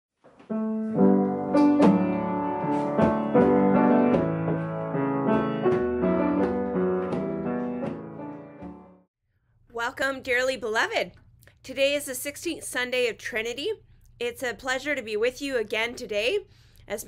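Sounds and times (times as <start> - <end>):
piano music: 0.5 - 9.1.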